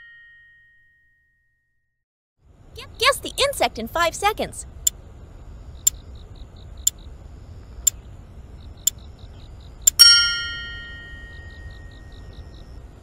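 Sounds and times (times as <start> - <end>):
bright bell ding: 0.0 - 1.6, 10.0 - 12.0.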